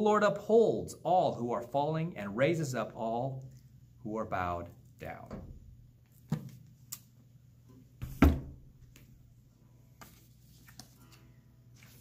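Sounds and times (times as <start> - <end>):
book thump: 8.0 - 8.6.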